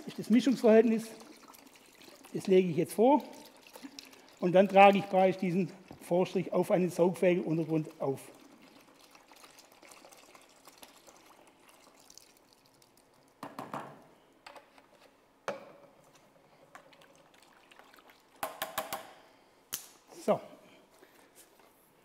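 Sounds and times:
liquid trickling into water: 0.0 - 13.4, 16.7 - 18.4.

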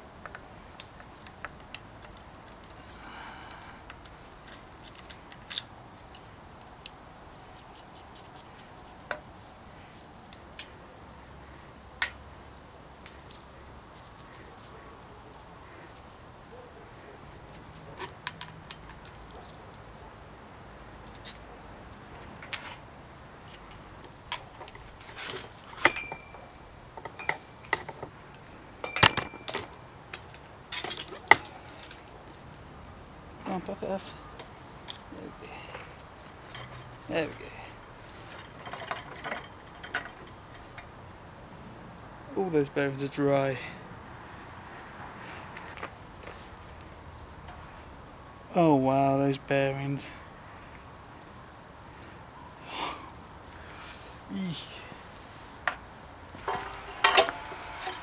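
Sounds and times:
metallic clicks of bicycle parts: 0.2 - 7.0, 27.0 - 32.5
brief metallic rings: 25.9 - 26.5.

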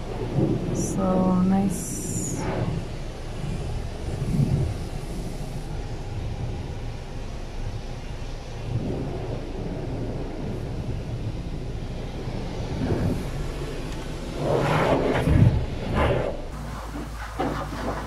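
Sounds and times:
water spray hitting car: 16.5 - 18.0.

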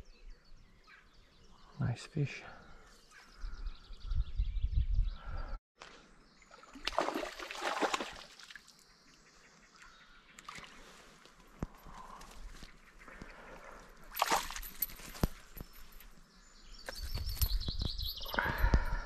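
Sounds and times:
fish splashing into river: 6.6 - 8.7, 14.1 - 14.7.

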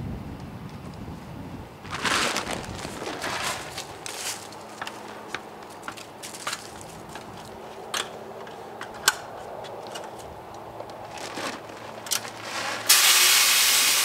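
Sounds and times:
feed bag rustling: 1.8 - 7.7, 11.0 - 12.9
corn kernels pouring into metal barrel: 12.4 - 14.0.

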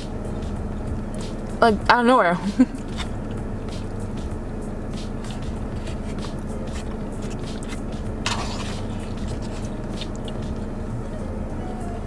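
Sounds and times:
steady low hum: 0.0 - 12.0
person chewing: 2.8 - 4.0, 5.0 - 10.8
fork scraping plastic bowl: 5.2 - 10.5.

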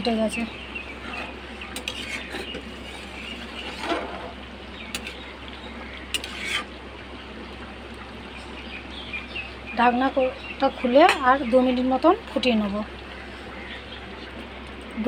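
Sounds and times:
steady low hum: 0.0 - 15.0
curry simmering in a pan: 0.2 - 15.0
spatula scraping a metal pan: 1.0 - 4.3, 6.1 - 6.7.

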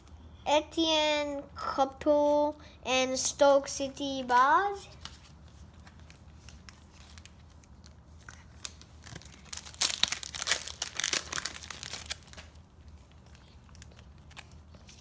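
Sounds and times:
foil pack tearing and crinkling: 8.6 - 12.6.

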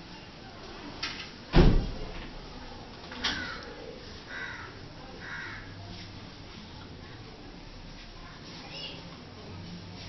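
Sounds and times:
sharp thump: 1.5 - 2.0.

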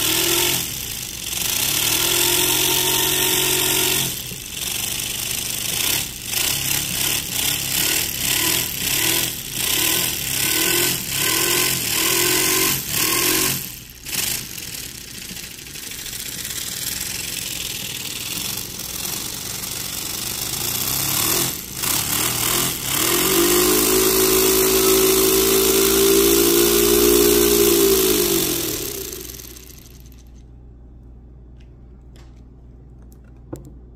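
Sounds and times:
air engine exhaust chuffing: 11.0 - 30.1.

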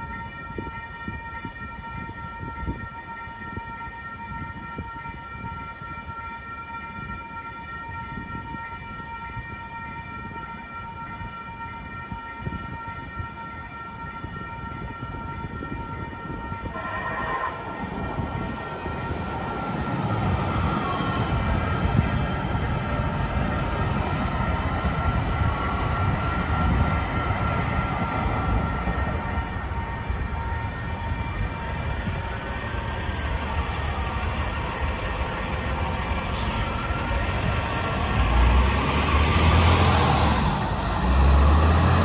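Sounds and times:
road traffic: 0.0 - 42.0
trains rolling over crossing: 16.4 - 42.0
crossing warning bells ringing: 16.7 - 39.0
truck engine: 32.7 - 42.0.

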